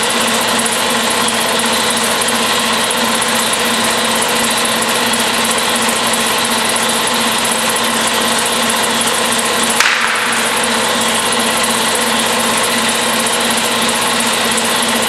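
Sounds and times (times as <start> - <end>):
machine drone and hiss: 9.8 - 15.0.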